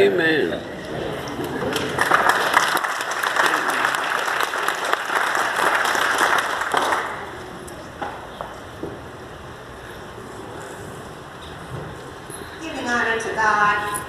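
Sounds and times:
crowd applauding: 1.3 - 7.5.

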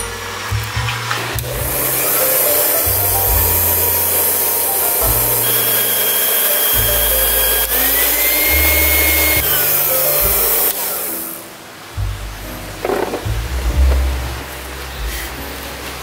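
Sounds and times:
background music with bass line: 0.0 - 10.8, 11.9 - 16.0
electric mixer whirring: 1.4 - 11.4.

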